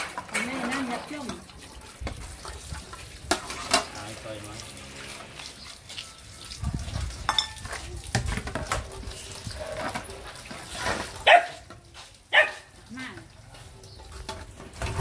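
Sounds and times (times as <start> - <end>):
water running from a tap: 0.0 - 10.5.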